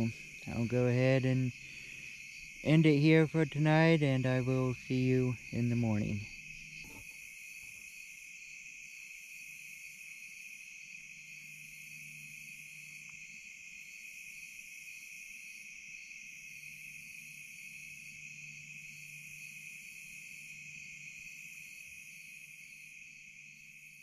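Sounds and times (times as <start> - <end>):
faint low hum: 0.0 - 7.1
crickets trilling: 0.0 - 24.0
high insect chorus pulsing: 0.0 - 24.0.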